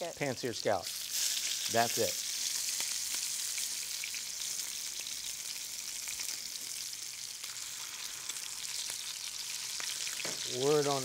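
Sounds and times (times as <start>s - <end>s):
scallops sizzling in hot oil: 0.0s - 11.0s.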